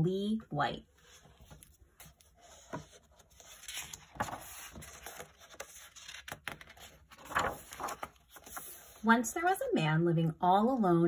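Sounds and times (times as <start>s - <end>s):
book pages rustling: 1.0s - 9.0s.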